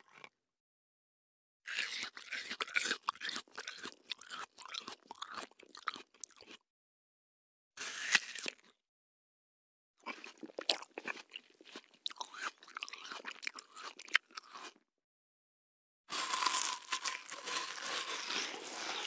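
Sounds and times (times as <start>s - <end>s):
person chewing crunchy food: 0.0s - 0.3s, 1.7s - 6.6s, 7.8s - 8.8s, 10.0s - 14.8s, 16.1s - 19.0s.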